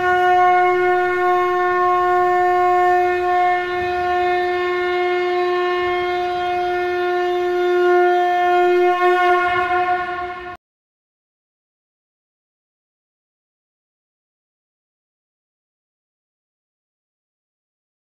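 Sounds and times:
long blown horn note: 0.0 - 10.6.

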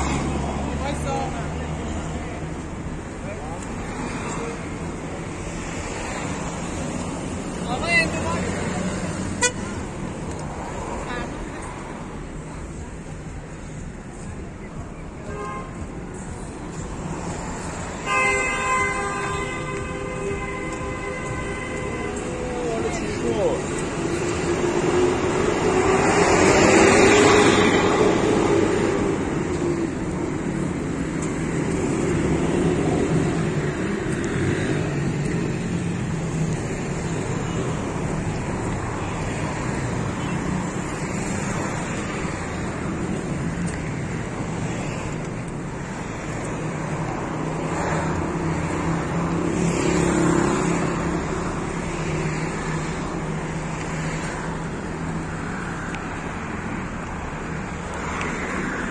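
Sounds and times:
rush of cars on road: 0.0 - 58.9.

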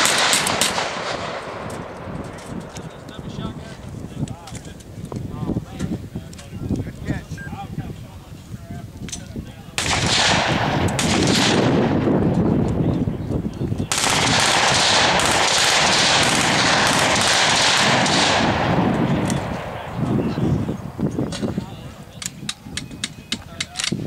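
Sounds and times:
machine-gun fire: 0.0 - 2.0, 9.8 - 12.2, 13.9 - 19.8.

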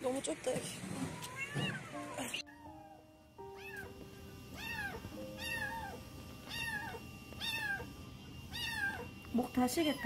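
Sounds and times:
kitten meowing: 1.2 - 3.0, 4.6 - 7.9, 8.5 - 9.1.

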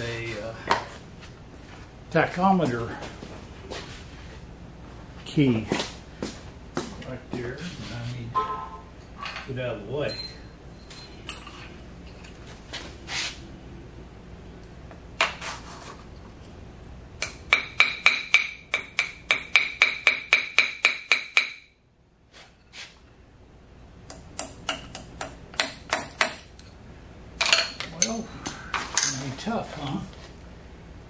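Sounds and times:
small hammer tapping steel: 17.2 - 21.8, 24.1 - 26.7.

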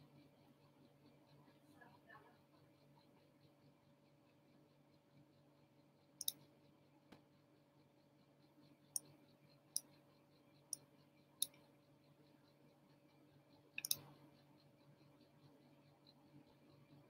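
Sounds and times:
faint sharp clicks: 6.2 - 6.4, 9.0 - 10.0, 10.7 - 11.6, 13.8 - 14.2.

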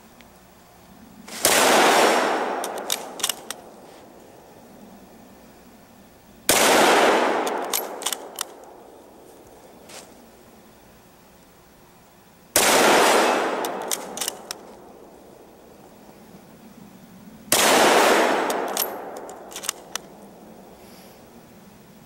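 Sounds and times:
rifle shots echoing: 1.3 - 3.8, 6.5 - 8.9, 12.6 - 15.1, 17.5 - 20.2
rifle bolt metallic clicks: 2.5 - 3.6, 7.4 - 8.8, 13.6 - 14.8, 18.4 - 20.1.

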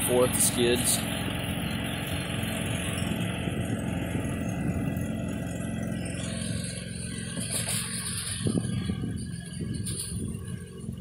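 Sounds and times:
riding mower engine running: 0.0 - 11.0.

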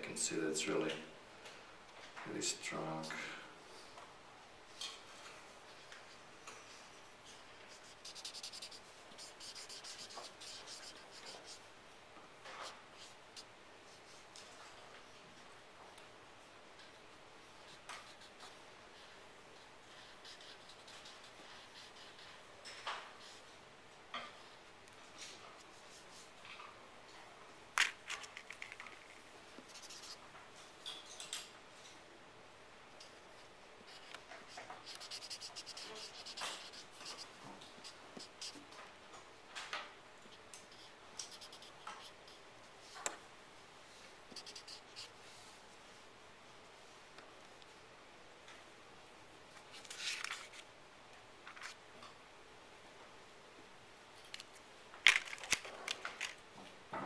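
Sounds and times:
marker scribbling on paper: 7.7 - 11.6, 17.7 - 22.4, 29.7 - 30.2, 33.9 - 38.7, 40.7 - 42.4, 44.4 - 45.1.

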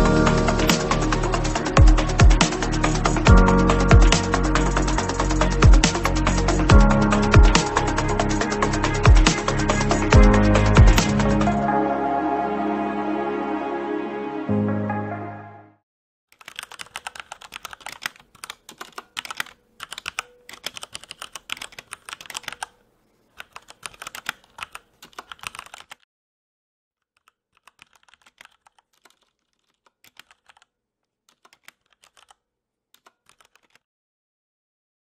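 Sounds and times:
mechanical keyboard typing: 0.6 - 11.6, 16.3 - 26.0, 27.1 - 32.4, 33.0 - 33.8.

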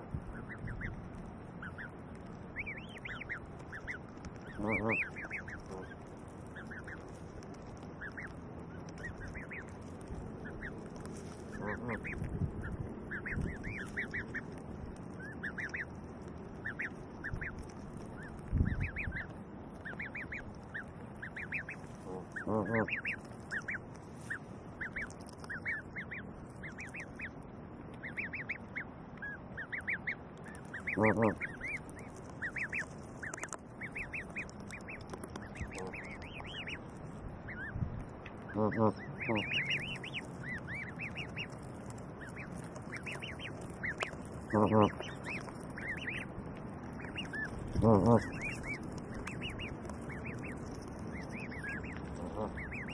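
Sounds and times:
goslings peeping: 0.0 - 52.9
goose honking: 2.6 - 7.0, 10.4 - 14.6, 15.2 - 15.9, 16.6 - 27.3, 28.0 - 31.8, 32.4 - 36.8, 38.4 - 41.5, 42.2 - 46.3, 46.9 - 52.9.

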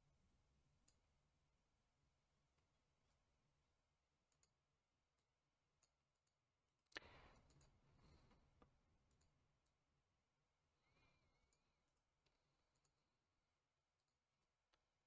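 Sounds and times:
computer mouse clicks: 4.3 - 4.6, 5.2 - 9.8.

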